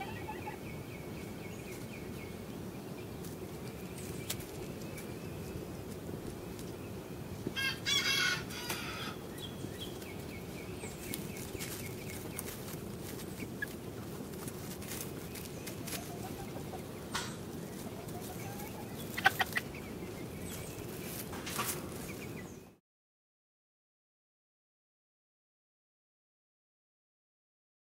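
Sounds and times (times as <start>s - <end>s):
chickens clucking: 0.0s - 22.7s
low background noise: 0.0s - 22.8s
loud high chicken call: 7.6s - 9.2s.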